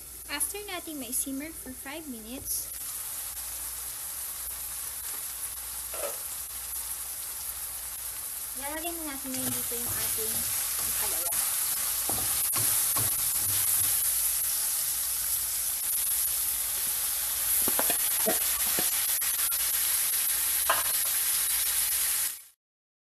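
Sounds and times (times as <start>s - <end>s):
food sizzling in a wok: 0.0s - 22.6s
utensil clicking on pan: 9.3s - 14.0s, 17.6s - 19.0s.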